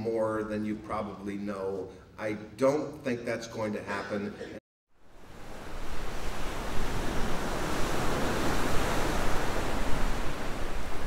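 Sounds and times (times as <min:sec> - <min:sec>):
waves breaking: 0:05.1 - 0:11.0.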